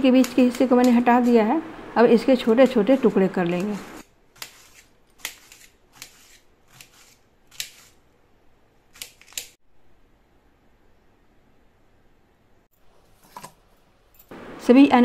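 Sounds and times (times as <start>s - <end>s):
knife cutting on steel plate: 4.4s - 8.0s
faint room hiss: 9.6s - 15.0s.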